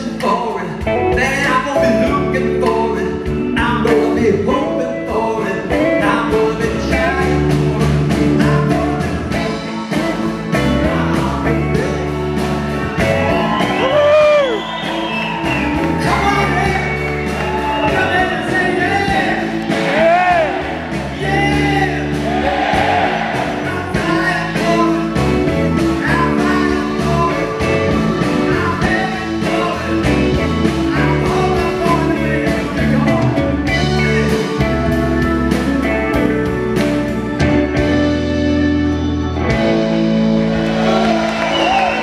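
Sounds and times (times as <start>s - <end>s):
man singing: 0.0s - 12.4s, 15.8s - 36.4s
bass guitar: 0.0s - 42.0s
drums: 0.0s - 42.0s
electric guitars: 0.0s - 42.0s.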